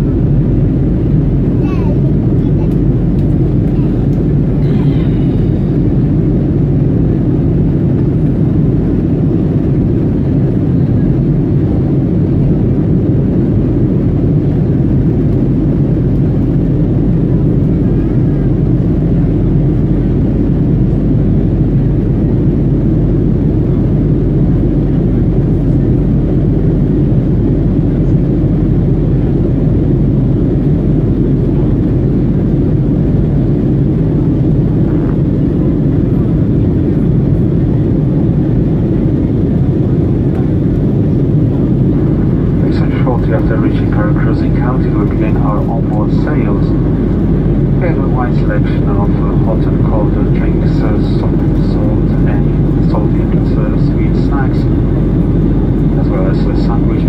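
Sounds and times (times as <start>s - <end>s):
jet engines rumbling in cabin: 0.0s - 57.0s.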